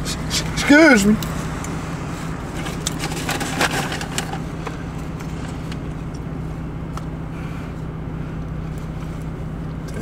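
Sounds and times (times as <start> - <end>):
car engine low hum: 0.0 - 10.0.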